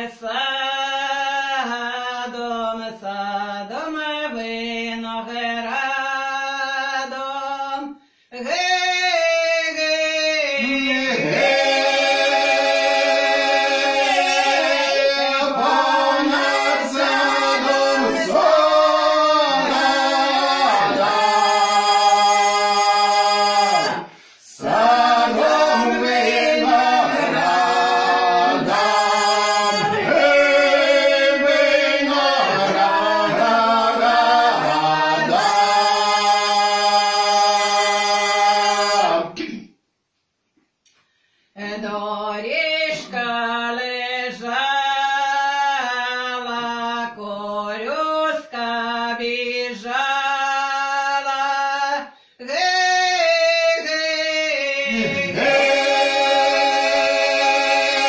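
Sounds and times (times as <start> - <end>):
group singing in harmony: 0.0 - 39.6, 41.6 - 58.0.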